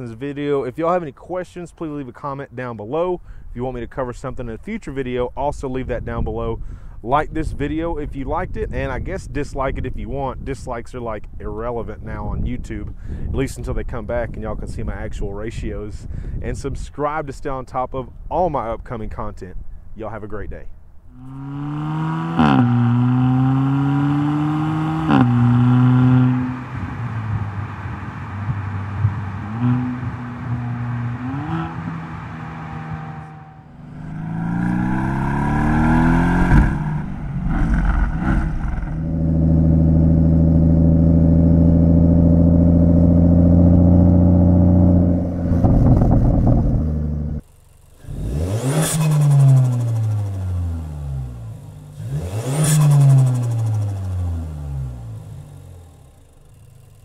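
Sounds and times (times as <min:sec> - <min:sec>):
car engine revving and upshifting: 0:21.2 - 0:47.4, 0:48.1 - 0:55.1.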